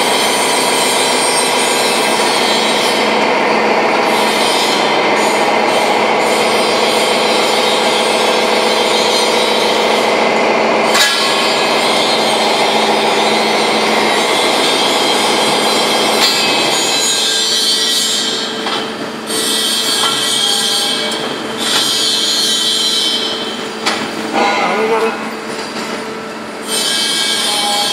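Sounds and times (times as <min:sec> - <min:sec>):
machine-shop noise: 0:00.0 - 0:27.9.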